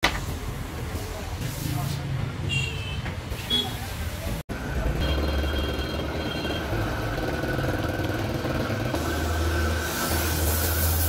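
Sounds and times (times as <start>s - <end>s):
gas torch flame hissing: 8.8s - 11.0s.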